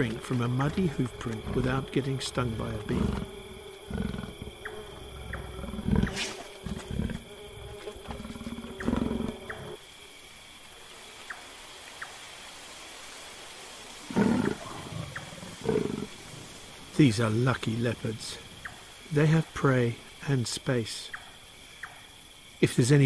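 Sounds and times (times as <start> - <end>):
leopards growling: 0.0 - 9.8, 14.0 - 16.3
bee buzzing: 0.7 - 9.8.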